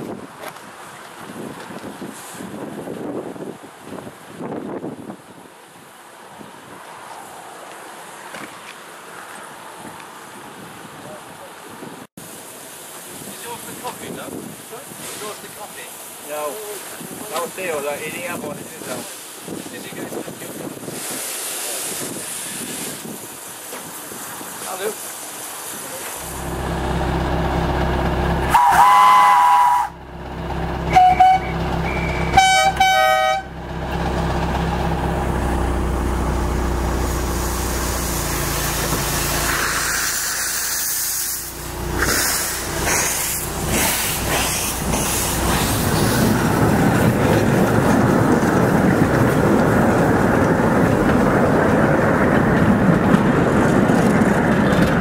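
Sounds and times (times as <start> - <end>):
steam hiss: 2.0 - 2.6, 12.2 - 26.6, 36.3 - 47.6
steam locomotive whistle: 28.5 - 30.0, 30.9 - 33.5
carriages rolling past: 29.8 - 55.0.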